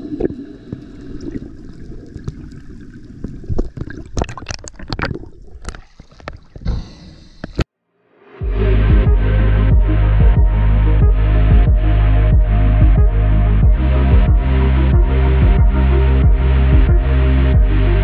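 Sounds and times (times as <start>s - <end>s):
underwater rush of water: 0.0s - 7.5s.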